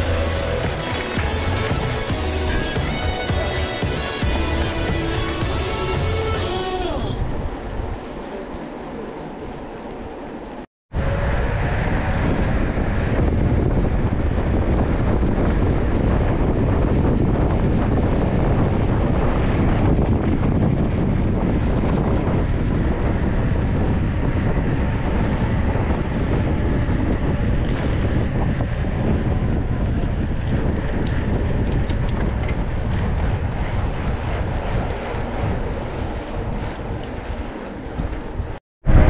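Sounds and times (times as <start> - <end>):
wind rushing over microphone: 0.0 - 39.0.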